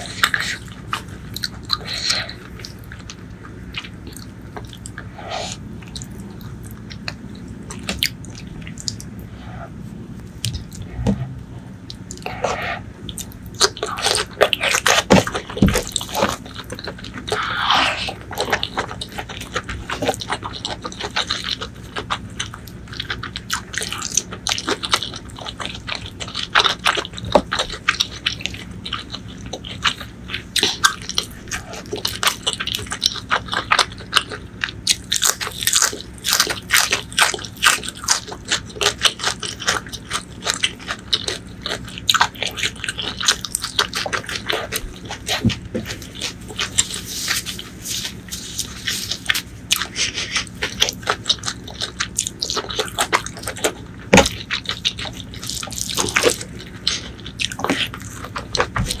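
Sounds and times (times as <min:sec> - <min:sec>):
wet chewing and crunching: 0:00.0 - 0:59.0.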